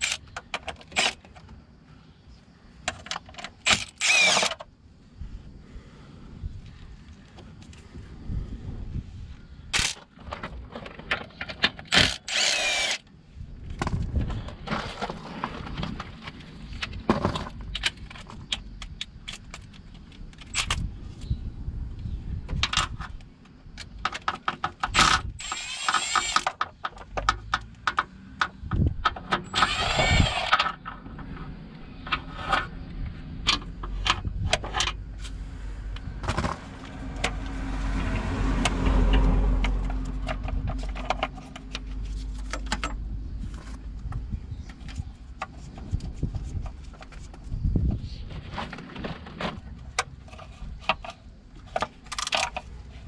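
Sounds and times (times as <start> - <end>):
impact wrench bursts: 3.6 - 4.6, 11.9 - 13.0, 24.9 - 26.5, 29.4 - 30.6.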